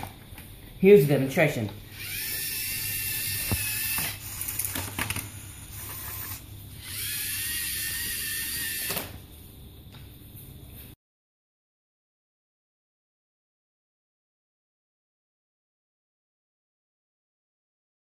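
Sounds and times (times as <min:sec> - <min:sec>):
robot motors and gears whining: 0:01.9 - 0:09.2.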